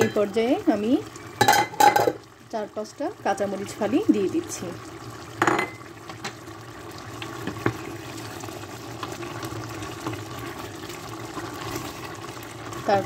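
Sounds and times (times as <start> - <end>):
curry simmering in a pot: 0.0 - 13.0.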